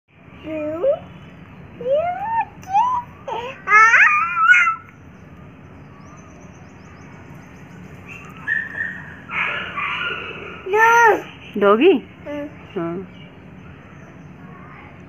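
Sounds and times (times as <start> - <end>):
toddler squealing: 2.7 - 4.9.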